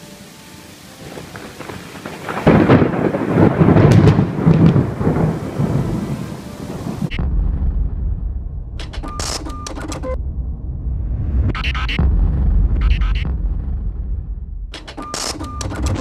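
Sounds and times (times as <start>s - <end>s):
steady rain: 0.0s - 7.1s
thunder clap rolling: 1.0s - 9.0s
low rumble: 7.1s - 9.1s, 9.9s - 14.8s.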